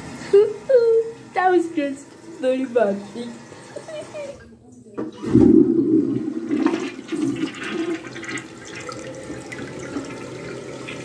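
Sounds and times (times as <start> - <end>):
toilet water rushing: 0.0 - 11.0
toilet flush click: 3.4 - 11.0.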